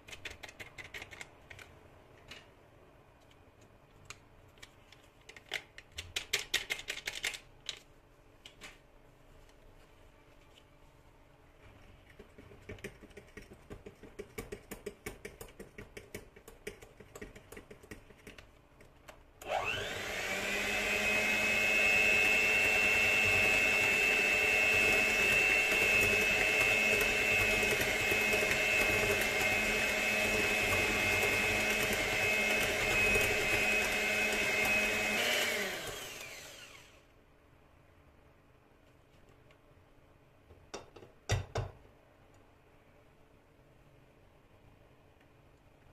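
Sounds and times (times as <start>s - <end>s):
electric hand mixer running: 19.4s - 37.0s.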